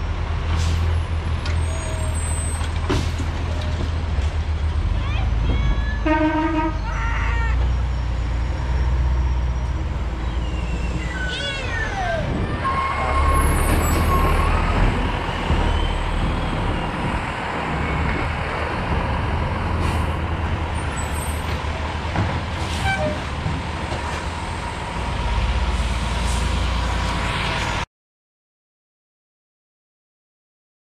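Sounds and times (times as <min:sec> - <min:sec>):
squeal sliding down in pitch: 0:07.9 - 0:14.7.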